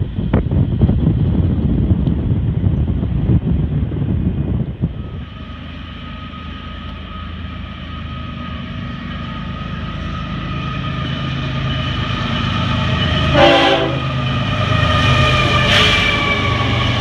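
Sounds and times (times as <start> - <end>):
diesel engines rumbling: 0.0 - 17.0
train horn blasts: 13.0 - 14.2, 15.0 - 16.6.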